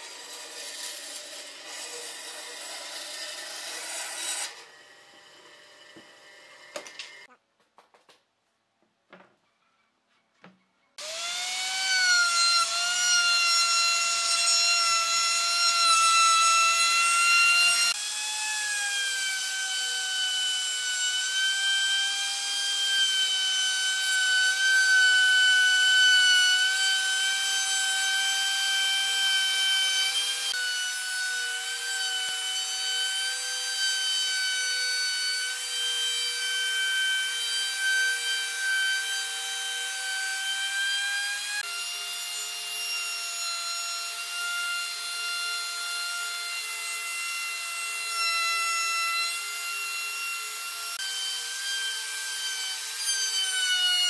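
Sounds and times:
electric router whining: 0:04.5 - 0:07.3, 0:11.0 - 0:13.4.

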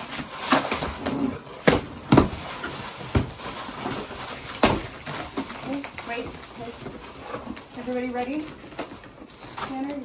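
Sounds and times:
tissue paper rustling: 0:00.0 - 0:10.0.

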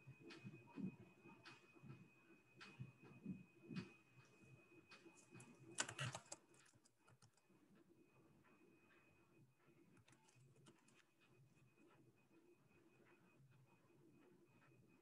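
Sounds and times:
computer keyboard typing: 0:04.9 - 0:07.5, 0:10.0 - 0:11.2.

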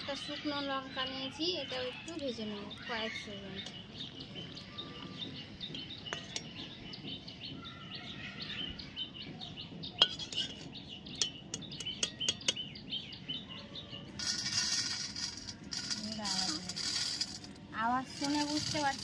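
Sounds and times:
small birds chirping: 0:00.0 - 0:19.0
metal spoon clinking on pan: 0:10.0 - 0:12.6
chilli frying in oil: 0:14.2 - 0:19.0.

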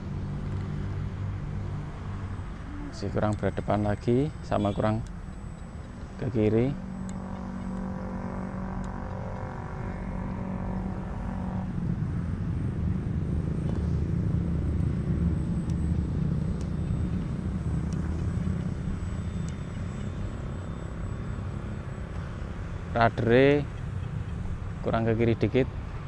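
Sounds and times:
model plane motor humming: 0:00.1 - 0:24.8
low rumble: 0:00.9 - 0:22.6.

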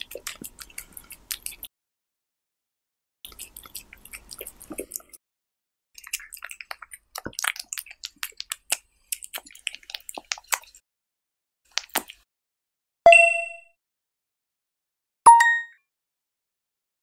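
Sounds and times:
cat licking and eating: 0:00.0 - 0:01.7, 0:03.3 - 0:05.2, 0:06.0 - 0:10.8, 0:11.7 - 0:12.2
bright ding: 0:13.1 - 0:13.7, 0:15.3 - 0:15.8.

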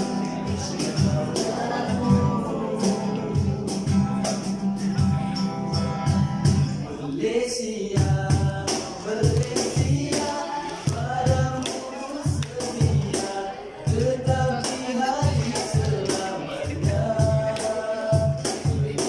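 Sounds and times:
man singing: 0:00.0 - 0:05.4, 0:06.6 - 0:19.0
strummed acoustic guitar: 0:00.0 - 0:19.0
cajon thumps and slaps: 0:08.0 - 0:13.3, 0:13.9 - 0:19.0.

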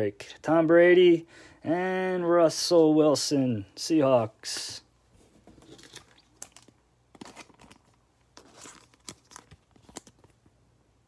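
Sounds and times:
foil wrappers crinkling: 0:05.5 - 0:10.4.

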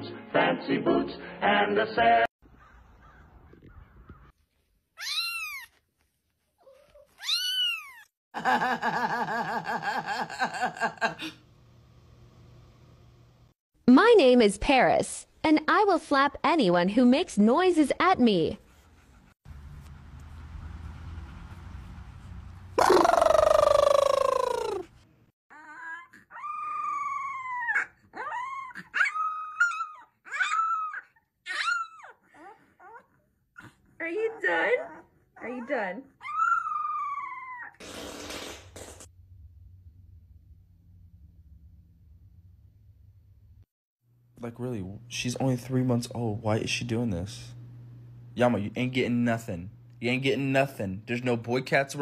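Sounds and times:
cat meowing and yowling: 0:05.0 - 0:05.8, 0:06.7 - 0:08.1
puppy howling: 0:25.5 - 0:33.1, 0:34.4 - 0:37.8.

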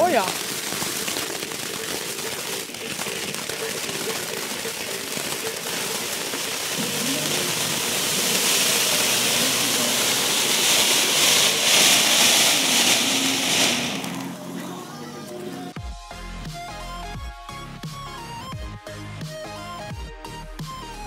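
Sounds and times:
firework fountain hissing: 0:00.0 - 0:15.2.

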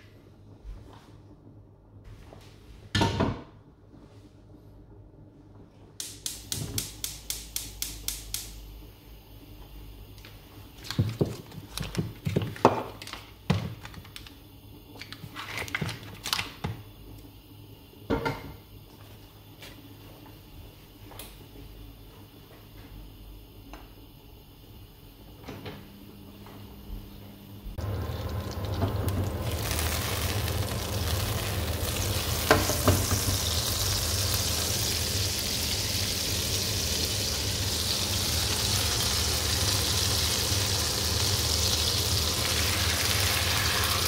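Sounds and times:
gas hob igniter clicking: 0:06.0 - 0:08.8, 0:27.8 - 0:35.4.

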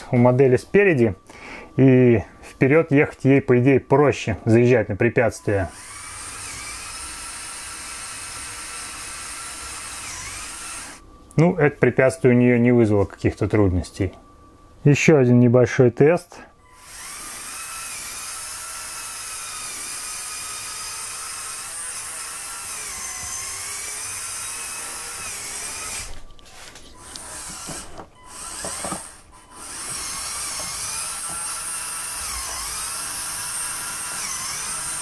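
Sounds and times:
toy truck electric motors whining: 0:05.6 - 0:11.0, 0:16.6 - 0:35.0.

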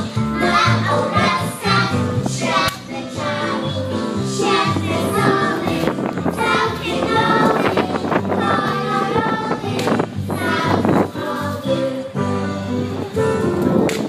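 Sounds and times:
music accompaniment with bass line: 0:00.0 - 0:14.0
girls singing into microphones: 0:00.3 - 0:12.5.

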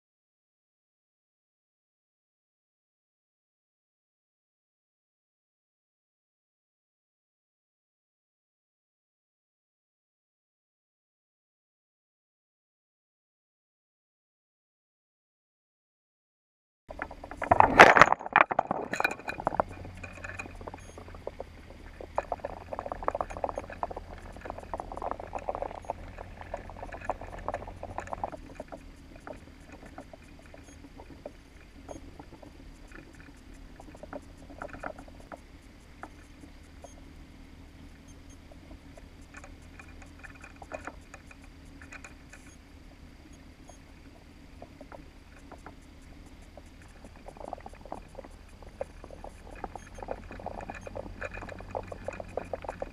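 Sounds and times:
clicks and knocks: 0:16.9 - 0:32.5
low underwater hum: 0:16.9 - 0:52.9.

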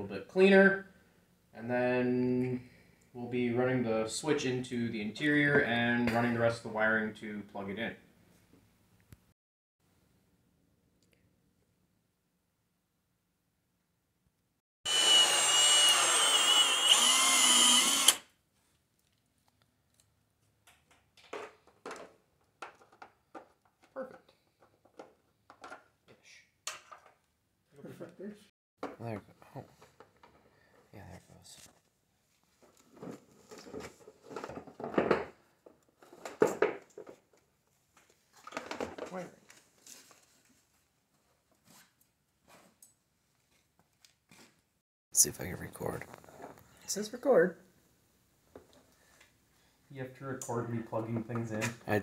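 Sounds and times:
cordless drill whining: 0:14.9 - 0:18.3.

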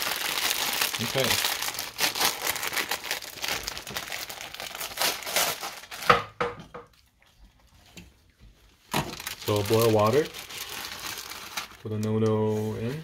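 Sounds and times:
plastic wrapper crinkling: 0:00.0 - 0:06.2, 0:08.8 - 0:13.0.

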